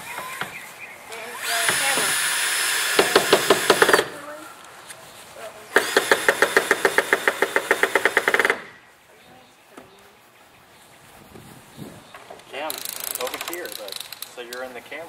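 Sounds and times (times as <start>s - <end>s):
cordless drill motor whine: 1.1s - 4.0s
drill clutch clicking: 1.4s - 4.1s, 12.6s - 14.6s.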